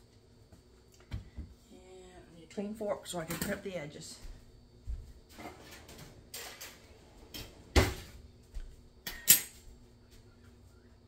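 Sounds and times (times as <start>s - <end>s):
cutlery knocking and clinking: 9.1s - 9.6s.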